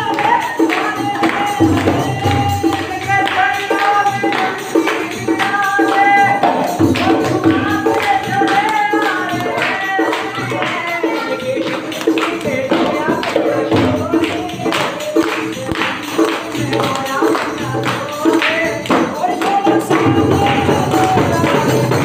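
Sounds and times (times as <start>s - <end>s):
frame drum beat: 0.0s - 22.0s
man singing: 0.0s - 22.0s.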